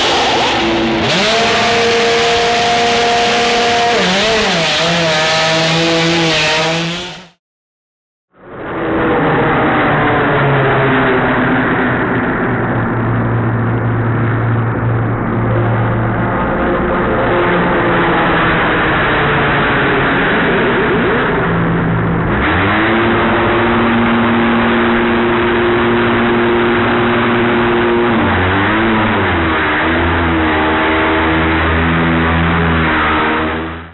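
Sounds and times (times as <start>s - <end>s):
racing car engine revving: 0.0s - 7.4s, 15.0s - 33.9s.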